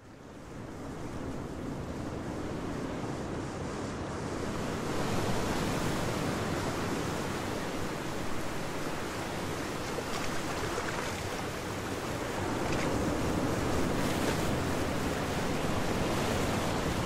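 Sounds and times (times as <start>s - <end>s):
waves washing on beach: 4.0s - 17.0s.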